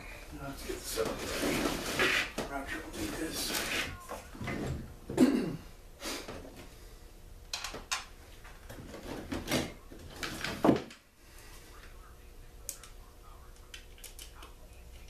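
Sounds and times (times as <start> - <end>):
generator knocking and scraping on wood: 0.6 - 4.8.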